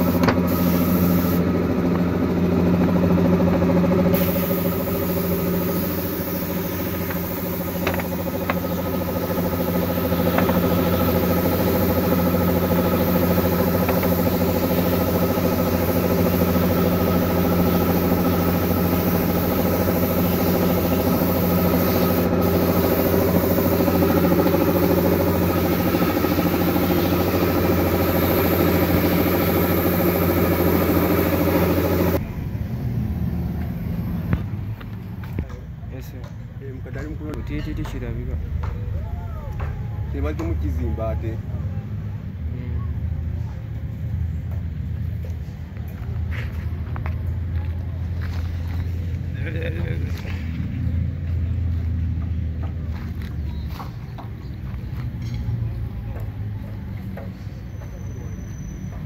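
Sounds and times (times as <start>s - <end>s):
motor humming: 0.0s - 32.2s.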